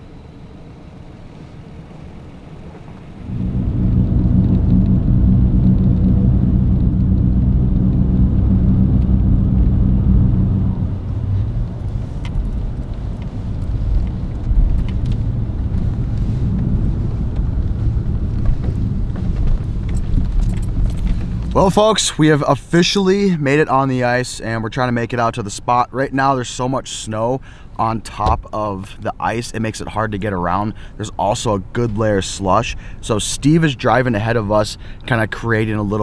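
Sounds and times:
vehicle engine hum: 0.0s - 25.8s
road rumble: 0.0s - 36.0s.

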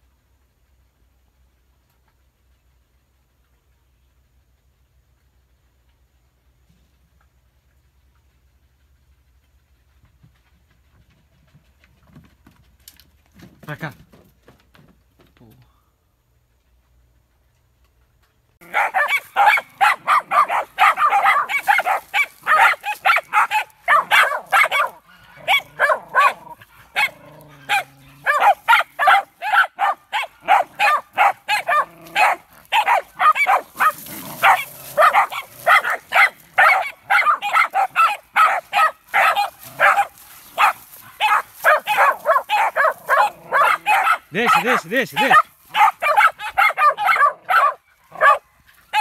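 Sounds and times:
dogs barking rapidly: 18.6s - 49.0s.

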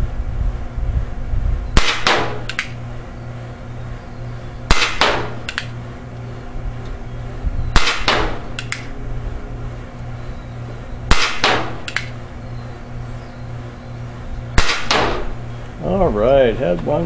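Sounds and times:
paintball gun shot crack: 1.8s - 2.8s, 4.7s - 5.7s, 7.8s - 8.9s, 11.1s - 12.2s, 14.6s - 15.4s
paintball hitting target board: 1.8s - 2.8s, 4.7s - 5.7s, 7.8s - 8.9s, 11.1s - 12.2s, 14.6s - 15.3s
light click: 8.6s - 8.9s.

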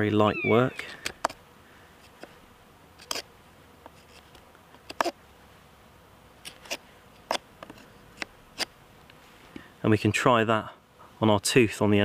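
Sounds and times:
knife cutting wood: 3.0s - 3.3s.

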